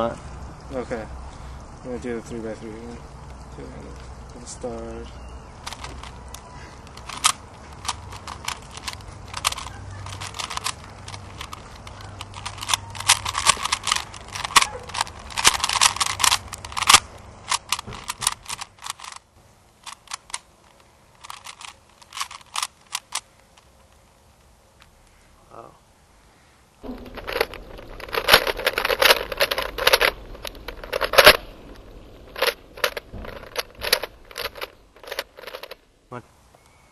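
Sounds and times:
plastic cube layers clicking: 5.6s - 24.0s, 26.8s - 35.8s.

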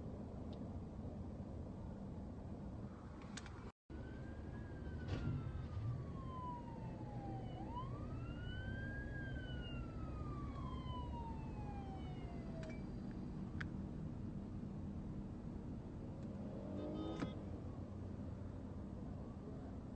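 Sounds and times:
low car rumble: 0.0s - 19.9s
police siren wailing: 3.9s - 12.8s.

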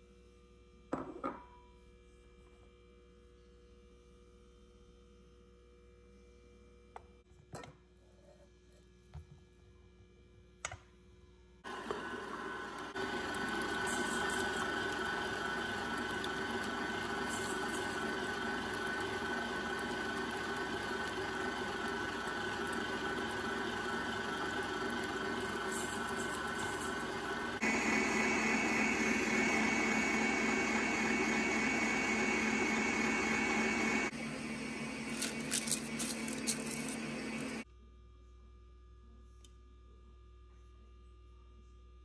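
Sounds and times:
electric mixer whisking: 11.7s - 37.6s.

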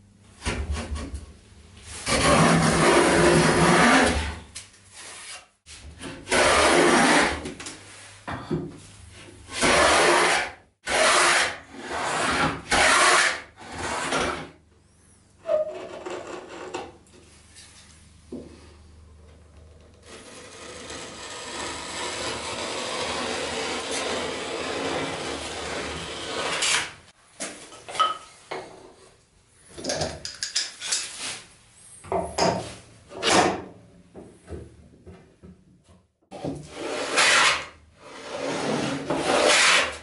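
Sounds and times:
steady rasping: 20.0s - 26.5s
hand plane shaving wood: 20.1s - 26.9s, 36.7s - 40.0s.

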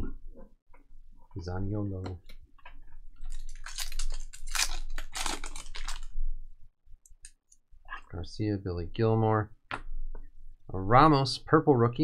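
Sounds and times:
wrapper tearing and crinkling: 3.2s - 6.2s.

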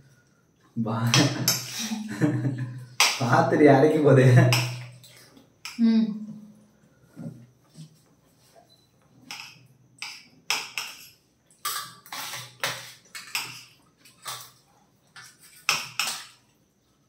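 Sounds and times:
cutlery clinking and scraping plates: 9.2s - 14.5s, 15.2s - 16.4s.

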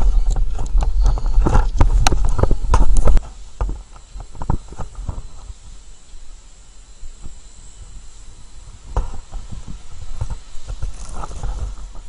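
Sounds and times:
microphone handling rumble: 0.0s - 5.8s, 8.6s - 12.0s.

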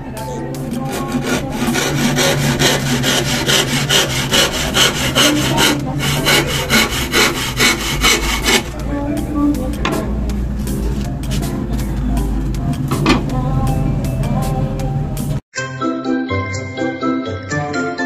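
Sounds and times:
handsaw cutting wood: 0.6s - 8.7s.

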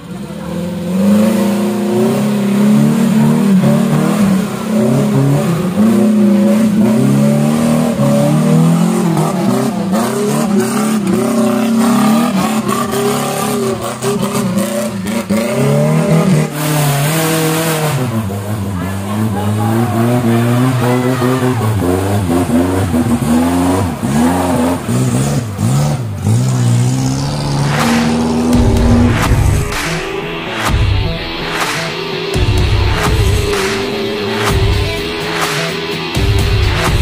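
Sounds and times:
off-road engine revving: 0.0s - 37.0s.

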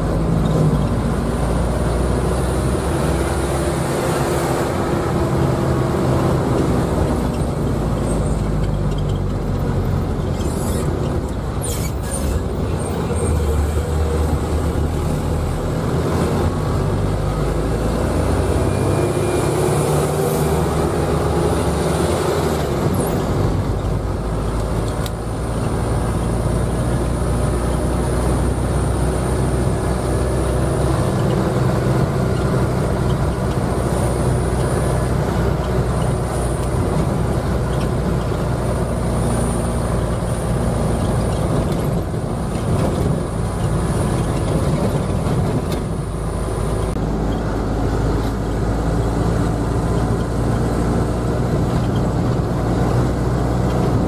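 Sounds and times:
minibus engine and road noise: 0.0s - 54.0s.

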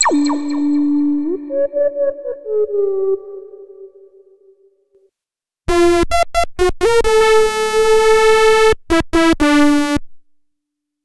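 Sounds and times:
bright synth lead phrase: 0.0s - 1.7s
soft theremin-like sine tone: 0.0s - 4.0s.

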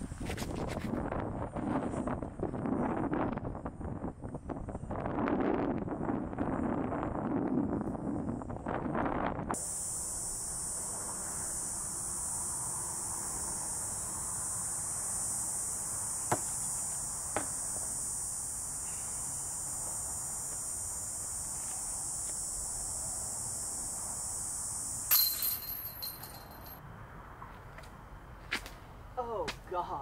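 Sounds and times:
insects buzzing: 9.6s - 26.8s
sharp knocks: 16.3s - 16.6s, 17.3s - 17.6s.

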